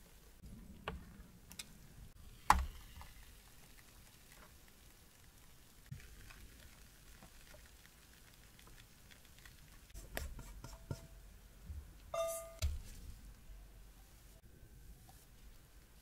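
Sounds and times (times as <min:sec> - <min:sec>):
soft pattering and ticks: 0:02.9 - 0:11.0.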